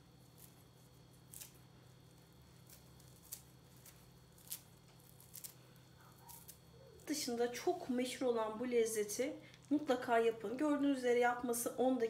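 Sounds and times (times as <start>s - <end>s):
faint steady hum: 0.0s - 12.0s
parsley crumbled by hand: 0.2s - 7.1s.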